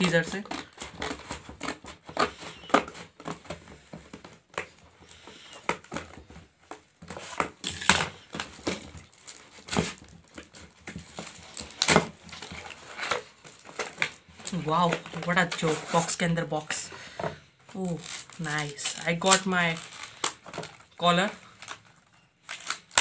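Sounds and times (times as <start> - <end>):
scissors cutting plastic: 0.0 - 3.6, 7.0 - 16.2, 17.7 - 23.0
plastic pouch crinkling: 7.1 - 16.2, 17.7 - 23.0.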